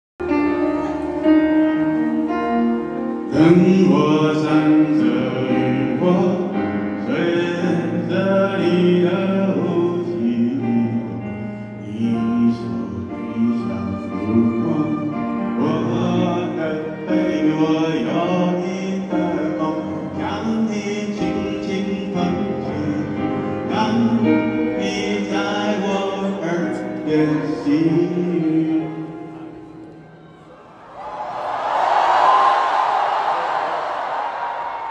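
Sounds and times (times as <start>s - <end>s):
piano accompaniment: 0.2s - 30.7s
man singing a slow ballad: 3.1s - 30.2s.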